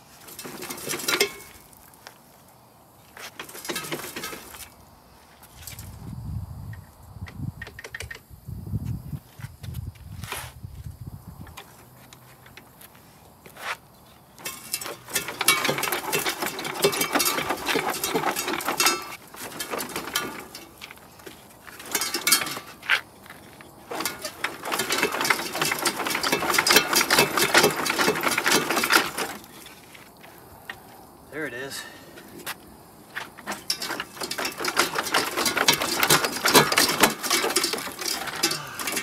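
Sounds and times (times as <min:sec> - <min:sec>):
hand tools clicking on metal: 0:00.2 - 0:01.7, 0:03.2 - 0:04.7, 0:07.3 - 0:08.3, 0:14.4 - 0:29.7, 0:33.2 - 0:39.0.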